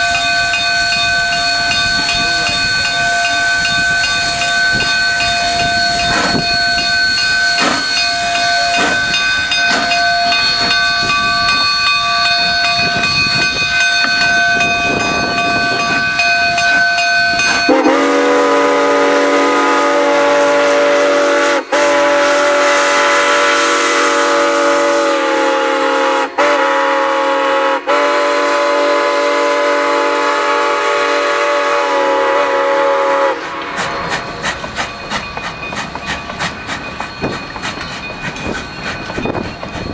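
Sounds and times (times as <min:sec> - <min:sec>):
steam whistle blasts: 0:00.0 - 0:09.0, 0:17.7 - 0:34.4
steam locomotive hissing and chuffing: 0:00.0 - 0:39.9.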